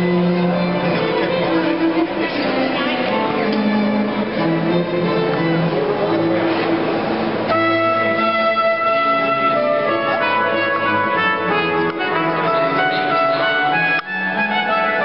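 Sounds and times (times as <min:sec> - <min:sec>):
brass playing held chords: 0:00.0 - 0:15.0.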